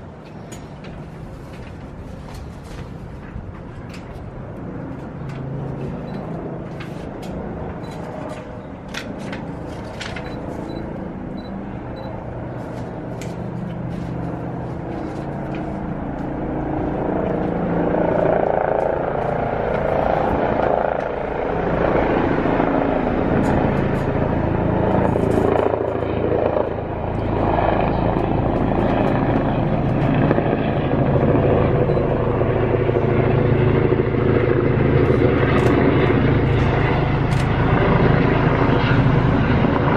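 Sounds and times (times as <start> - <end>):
helicopter rotor drone: 0.0 - 39.9.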